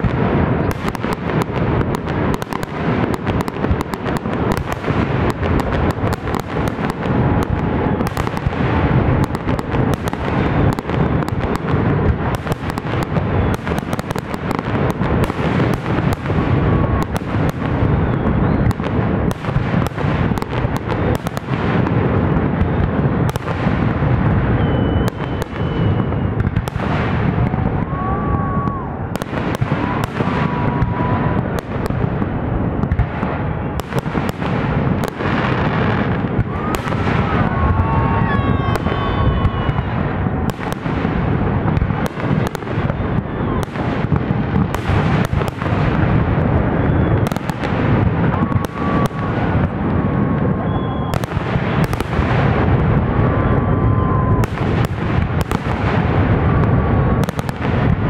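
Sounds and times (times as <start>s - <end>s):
fireworks bursts and bangs: 0.0s - 58.0s.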